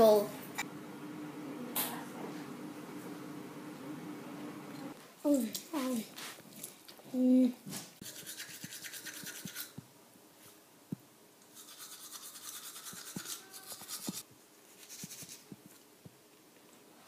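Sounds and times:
toothbrush scrubbing teeth: 8.0s - 9.8s, 11.5s - 14.2s, 14.8s - 15.5s.

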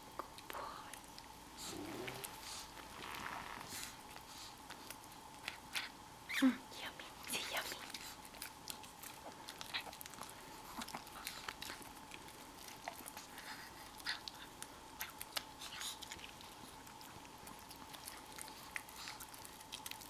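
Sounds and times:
dog licking and smacking: 3.7s - 6.0s, 7.0s - 20.0s.

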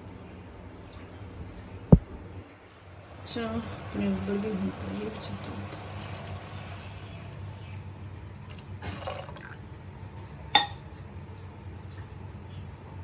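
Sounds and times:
milk pouring into liquid: 8.3s - 9.7s.

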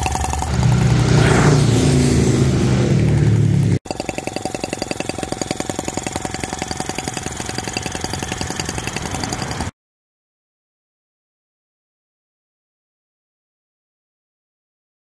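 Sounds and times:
low drone: 0.0s - 9.7s
model engine running: 0.0s - 9.7s.

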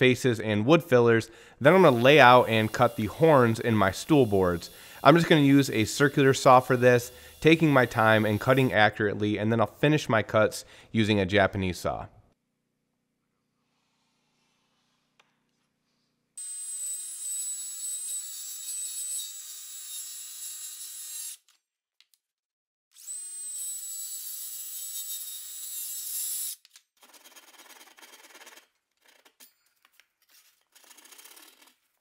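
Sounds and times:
hand saw strokes: 1.6s - 8.9s
circular saw cutting wood: 1.6s - 10.0s.

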